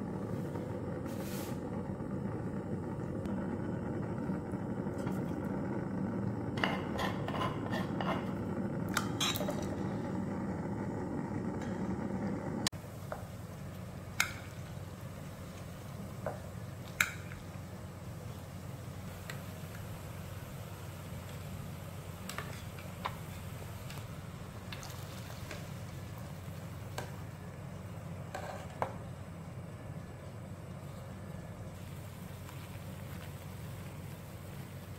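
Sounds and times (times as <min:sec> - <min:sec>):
low hum: 0:00.0 - 0:12.7
steady low hum: 0:00.0 - 0:34.9
metal spoon scraping steel pot: 0:06.6 - 0:08.4.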